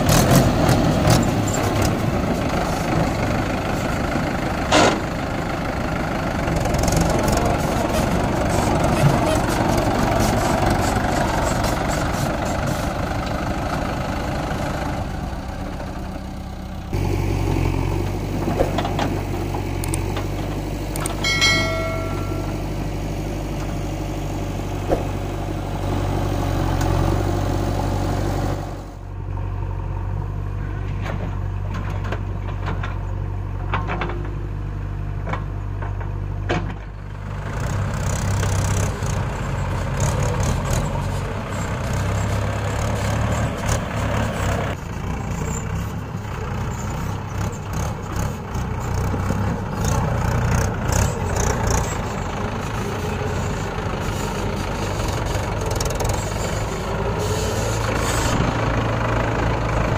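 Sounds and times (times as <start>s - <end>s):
backhoe loader working: 0.0s - 59.9s
tractor diesel engine idling: 0.0s - 59.9s
brief high tone: 21.2s - 22.8s.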